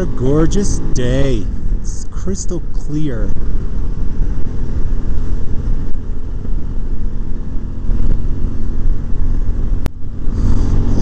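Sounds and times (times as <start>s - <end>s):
motorcycle engine running: 0.0s - 11.0s
wind noise on microphone: 3.3s - 11.0s.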